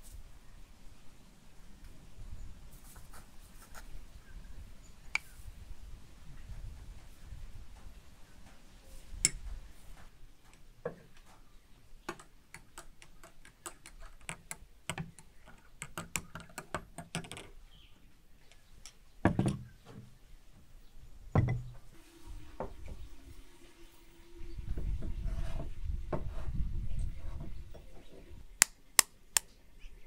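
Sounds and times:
glassware set down on wooden table: 0:21.4 - 0:21.8.

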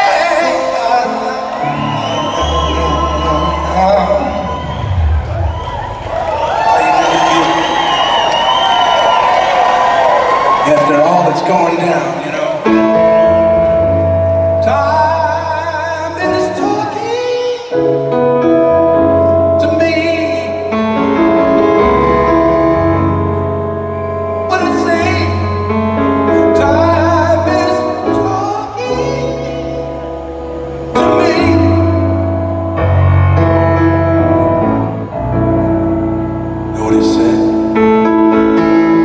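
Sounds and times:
man singing with vibrato: 0:00.0 - 0:04.6, 0:14.5 - 0:18.2, 0:19.2 - 0:23.4, 0:24.3 - 0:32.5, 0:36.8 - 0:39.0
bass line: 0:00.0 - 0:07.0, 0:17.8 - 0:39.0
grand piano chords: 0:00.0 - 0:39.0.

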